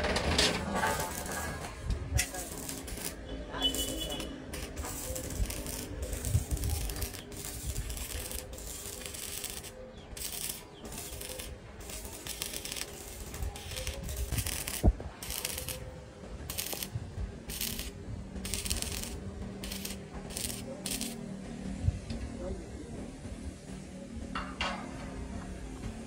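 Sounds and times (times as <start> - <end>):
arc welding crackling: 0.0 - 21.3.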